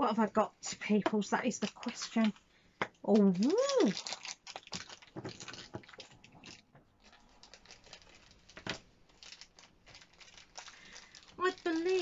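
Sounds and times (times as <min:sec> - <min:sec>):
plastic packaging crinkling: 0:01.6 - 0:02.5, 0:03.1 - 0:12.0
sharp plastic crackle: 0:03.0 - 0:12.0.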